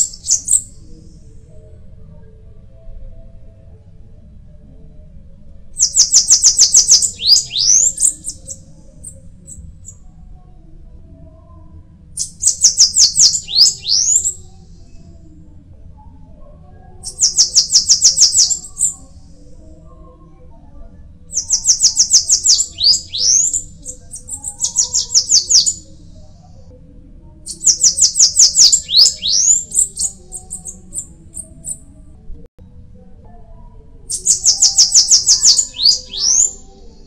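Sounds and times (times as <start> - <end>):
bird singing high thin notes: 5.8 - 8.5, 12.4 - 14.3, 21.4 - 23.6.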